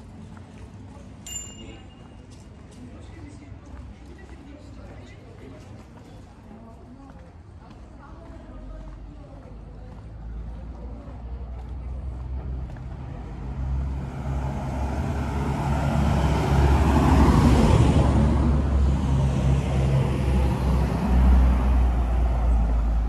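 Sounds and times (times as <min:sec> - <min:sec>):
car passing: 0:10.1 - 0:23.0
van driving past: 0:11.4 - 0:23.0.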